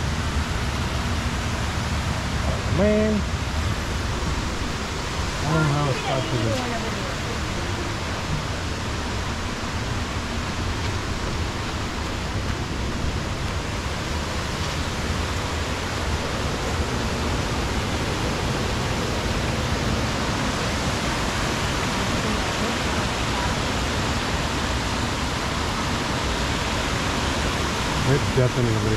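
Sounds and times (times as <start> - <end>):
waterfall rushing: 0.0 - 28.9.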